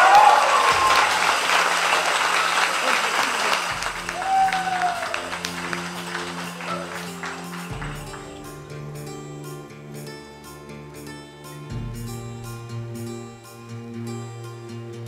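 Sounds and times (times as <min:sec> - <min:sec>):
crowd applauding: 0:00.0 - 0:09.9
soft background music: 0:03.8 - 0:15.0.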